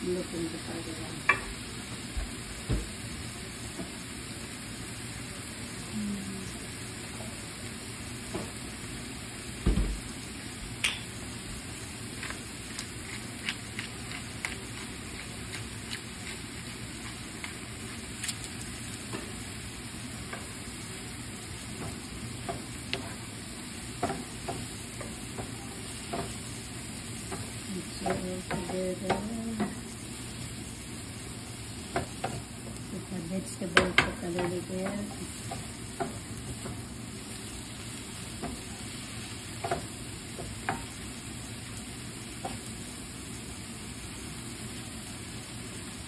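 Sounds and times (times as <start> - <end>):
food sizzling in a frying pan: 0.0 - 46.0
wooden spoon scraping a pan: 12.2 - 17.8.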